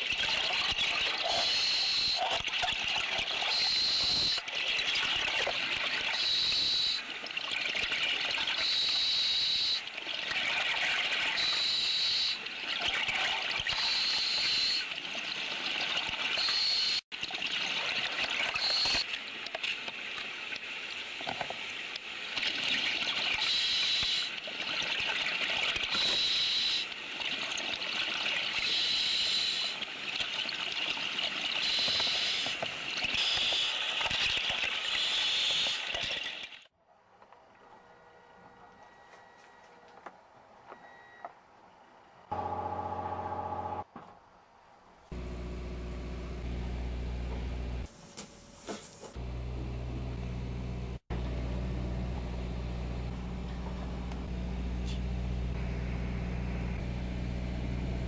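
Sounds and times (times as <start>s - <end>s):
bubbling and crackling underwater: 0.0s - 36.8s.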